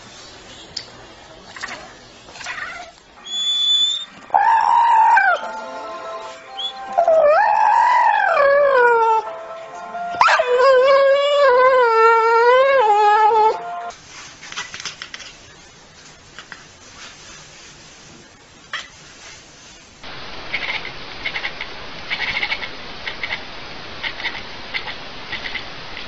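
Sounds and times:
puppy howling: 3.3s - 5.5s, 6.6s - 9.3s, 10.2s - 13.6s.

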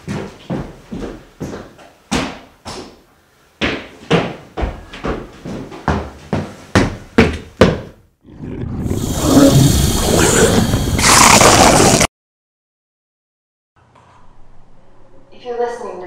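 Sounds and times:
loud rising roar: 8.2s - 12.1s.

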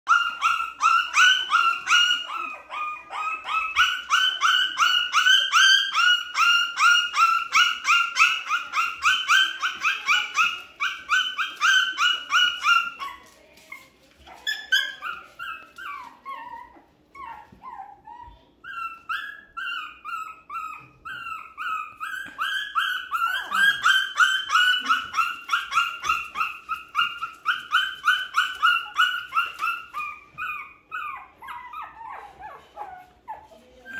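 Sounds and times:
puppies whining: 0.1s - 33.9s.

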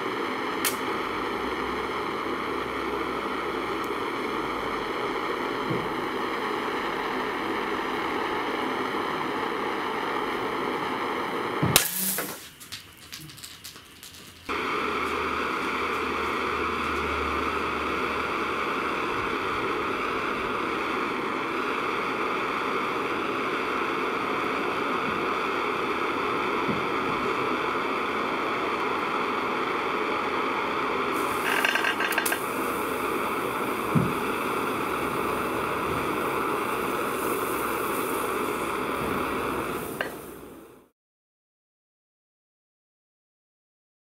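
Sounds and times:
gas torch flame hissing: 0.0s - 40.9s
sharp pop: 11.6s - 12.5s.

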